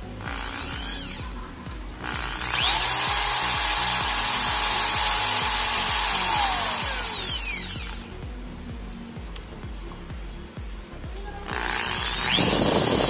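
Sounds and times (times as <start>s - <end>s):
background music: 0.0s - 13.0s
impact drill motor whine: 0.2s - 1.3s, 2.0s - 8.0s, 11.5s - 13.0s.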